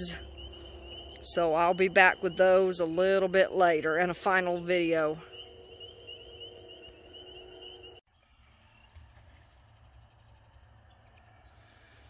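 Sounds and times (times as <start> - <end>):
low background rumble: 0.0 - 8.0.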